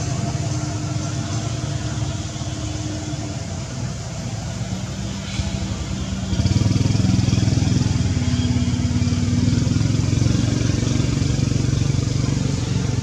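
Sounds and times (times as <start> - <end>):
engine running steadily: 0.0 - 13.0.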